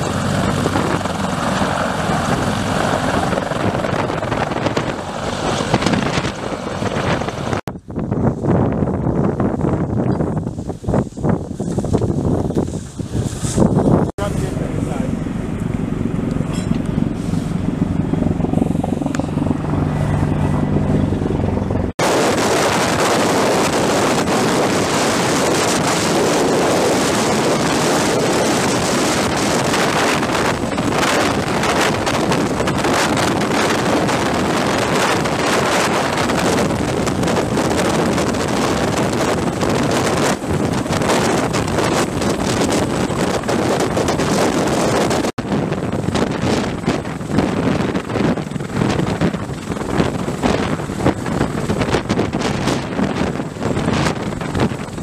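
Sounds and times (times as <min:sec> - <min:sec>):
helicopter rotor noise: 0:00.0 - 0:07.6, 0:13.8 - 0:55.0
low helicopter hum: 0:00.0 - 0:55.0
rotor downwash on microphone: 0:13.1 - 0:55.0.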